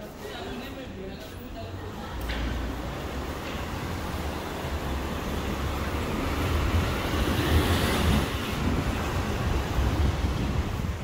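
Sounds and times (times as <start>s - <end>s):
train rumbling on track: 2.4s - 11.0s.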